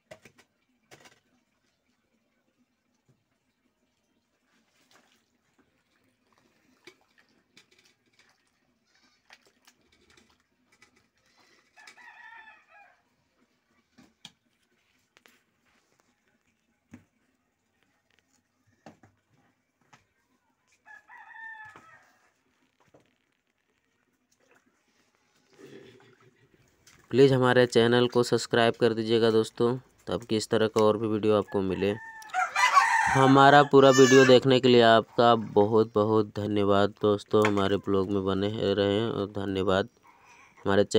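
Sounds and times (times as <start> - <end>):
rooster crowing: 11.8 - 13.0, 20.8 - 22.3, 31.9 - 34.4.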